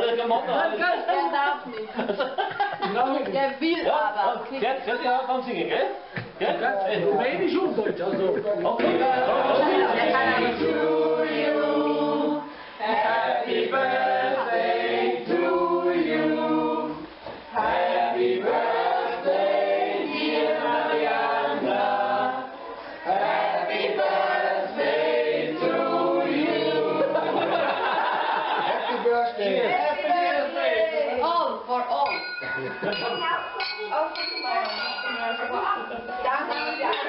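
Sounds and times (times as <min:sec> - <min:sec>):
group singing unaccompanied: 0:08.6 - 0:28.9.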